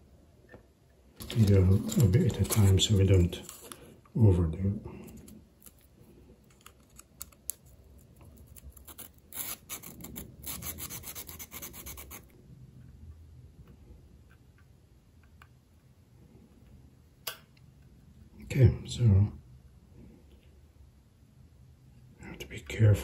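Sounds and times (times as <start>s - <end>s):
metal rubbing on sandpaper: 8.8s - 12.4s.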